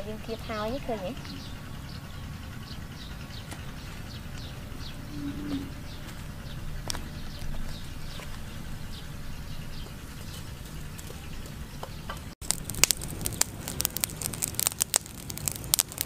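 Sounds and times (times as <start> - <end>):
charcoal fire crackling: 0.0 - 16.0.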